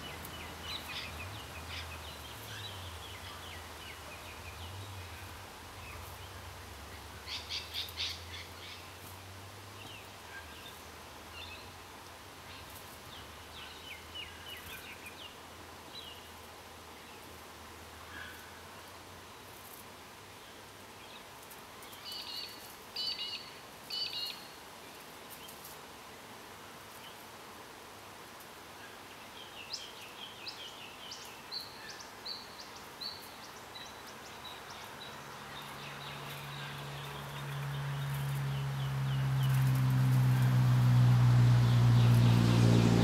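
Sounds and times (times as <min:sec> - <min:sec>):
birds chirping: 0:00.0 - 0:08.9, 0:29.2 - 0:40.8.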